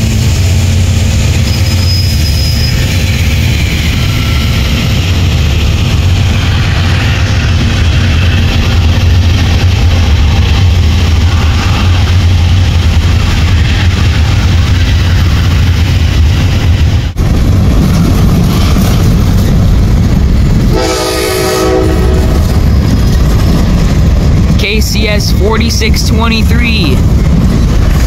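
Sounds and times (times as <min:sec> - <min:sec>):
locomotive horn blast: 0:20.7 - 0:22.4.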